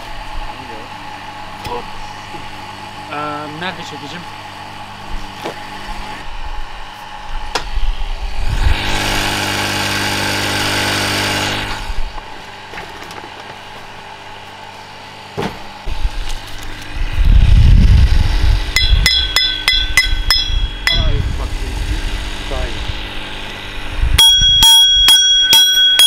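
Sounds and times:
loud low rumble: 0:16.9 - 0:19.1
sharp metallic clinks: 0:18.8 - 0:21.2, 0:24.2 - 0:26.0
loud hissing rush: 0:21.1 - 0:24.2.

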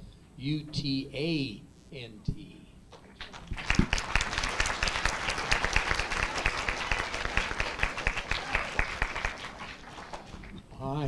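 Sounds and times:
audience applauding: 0:03.2 - 0:10.6.

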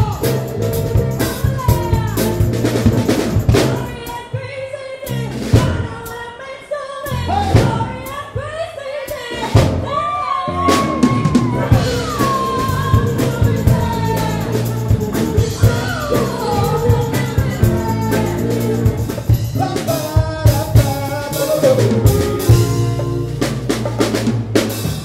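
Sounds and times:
bass guitar: 0:00.0 - 0:04.2, 0:05.1 - 0:06.1, 0:07.1 - 0:08.2, 0:09.3 - 0:25.0
drum kit beat: 0:00.0 - 0:06.4, 0:07.0 - 0:25.0
woman singing lead vocal: 0:03.6 - 0:22.9
backing singers: 0:03.6 - 0:23.3.

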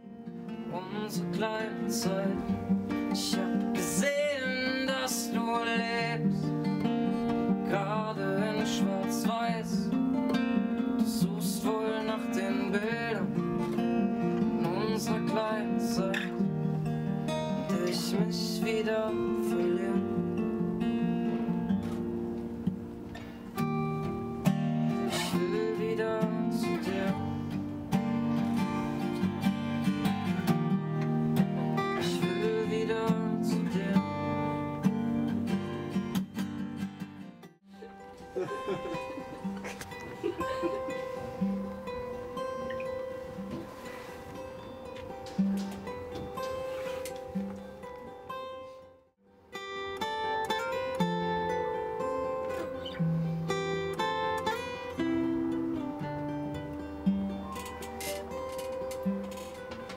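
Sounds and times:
acoustic guitar fingerpicked and strummed: 0:00.0 - 0:59.9
man singing: 0:00.6 - 0:06.5, 0:07.5 - 0:10.1, 0:11.0 - 0:16.6, 0:17.6 - 0:20.3, 0:25.0 - 0:27.5, 0:31.6 - 0:35.1.

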